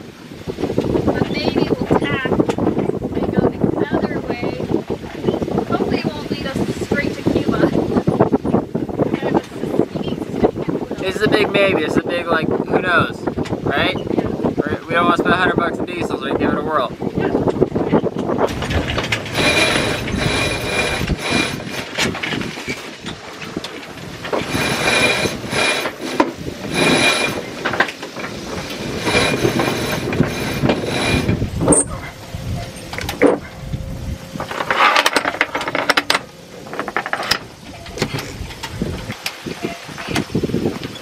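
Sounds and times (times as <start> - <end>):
winch ratcheting: 18.3 - 33.4, 34.4 - 41.0
lines running through blocks: 18.5 - 31.9.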